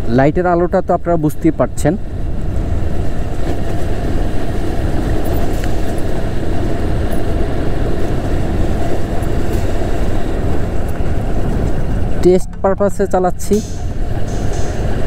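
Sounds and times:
motorcycle engine low rumble: 1.8 - 15.0.

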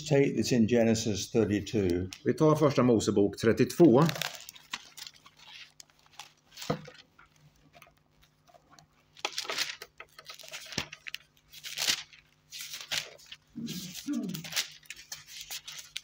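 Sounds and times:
thin pages turning: 3.8 - 16.0.

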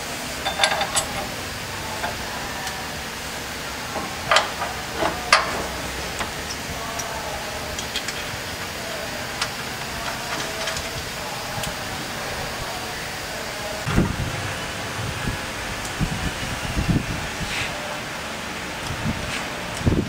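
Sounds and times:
metal bolts clinking on bracket: 0.4 - 1.4, 4.2 - 5.5.

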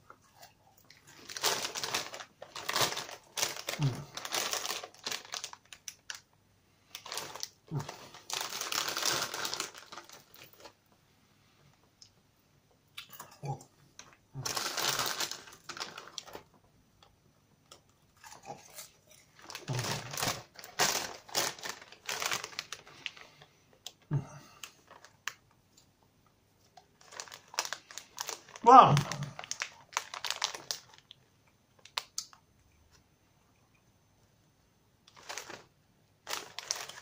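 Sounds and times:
plastic bag crinkling: 0.9 - 10.8, 14.0 - 16.6, 18.2 - 25.5, 26.8 - 31.2, 35.1 - 37.0
popcorn being chewed: 6.9 - 10.8, 13.0 - 16.6, 17.6 - 25.9, 26.6 - 32.4, 35.1 - 37.0.

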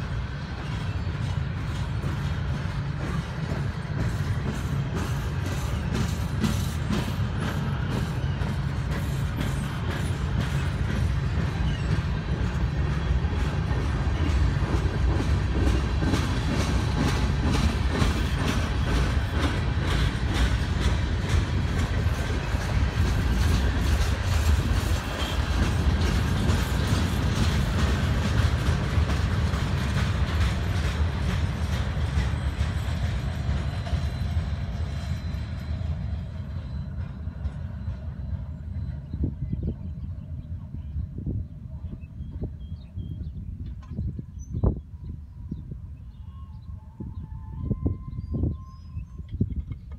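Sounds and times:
train wheels clicking over rail joints: 0.0 - 39.6
freight train rumbling past: 0.0 - 49.9.

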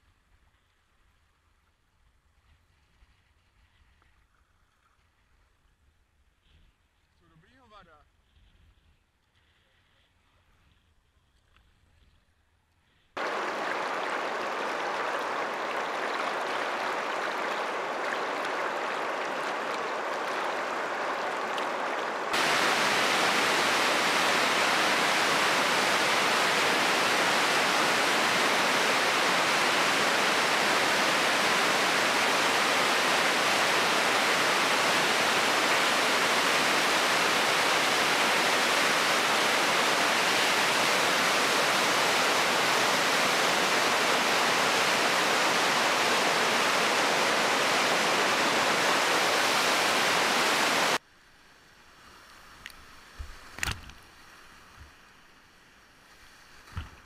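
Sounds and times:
river water rushing: 13.2 - 51.0
whitewater rapids roaring: 13.2 - 51.0.

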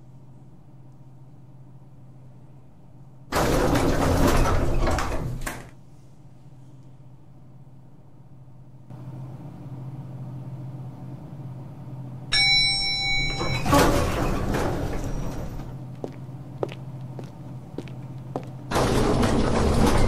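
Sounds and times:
low steady hum: 0.0 - 3.3, 5.4 - 20.0
lift doors sliding open: 3.3 - 5.8, 12.4 - 15.8, 18.6 - 20.0
elevator arrival chime: 12.3 - 15.7.

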